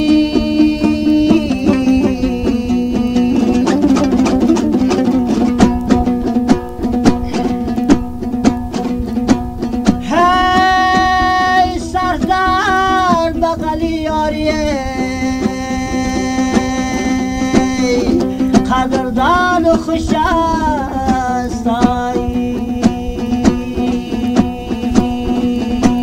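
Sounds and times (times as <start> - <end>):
lute strummed with droning strings: 0.0 - 26.0
man singing held notes: 10.0 - 26.0.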